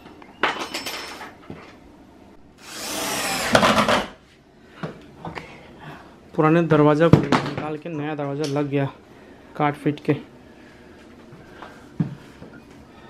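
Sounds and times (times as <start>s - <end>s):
cordless drill spinning: 2.6s - 4.0s.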